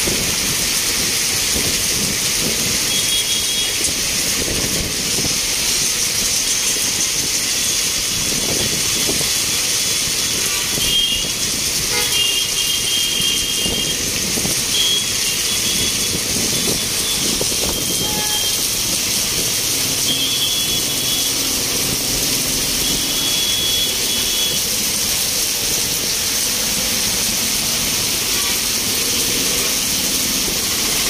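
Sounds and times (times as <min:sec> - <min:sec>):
heavy rain pouring on street: 0:00.0 - 0:31.0
traffic on wet road: 0:00.0 - 0:31.0
short high vehicle horn beeps: 0:18.0 - 0:18.6.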